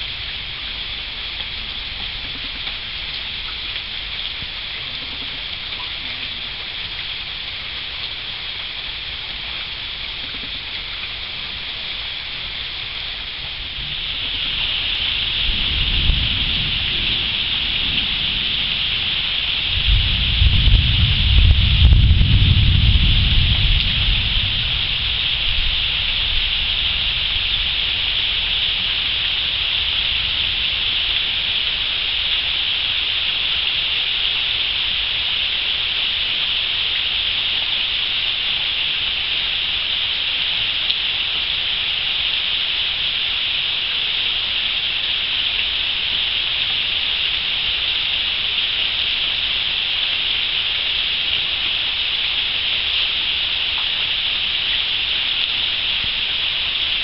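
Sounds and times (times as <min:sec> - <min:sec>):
heavy rain on water and foliage: 0:00.0 - 0:57.0
low rumble: 0:13.1 - 0:31.9.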